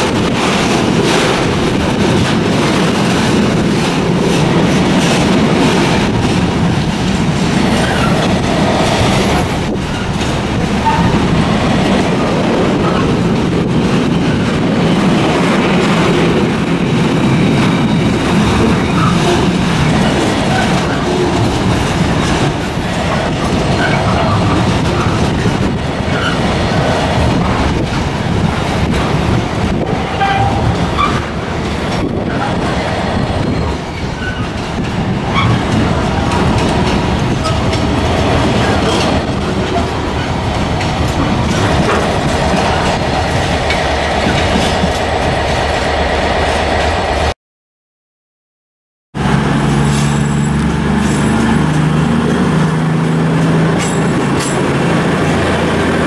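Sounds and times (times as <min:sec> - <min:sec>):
train wheels rumbling on rail: 0:00.0 - 0:47.3, 0:49.1 - 0:56.0
high wheel squeals: 0:49.6 - 0:51.6.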